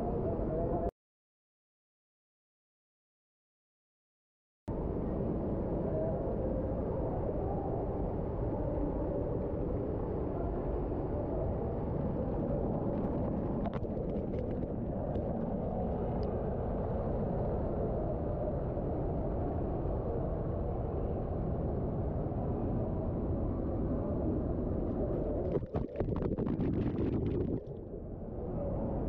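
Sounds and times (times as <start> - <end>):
water pouring over rock: 25.5 - 27.7.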